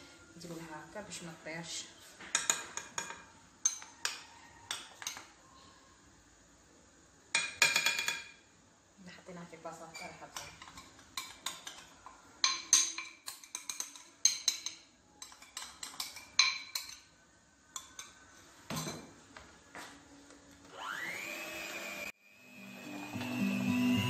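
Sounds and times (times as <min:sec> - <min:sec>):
hand mixer motor whirring: 0:20.7 - 0:24.0.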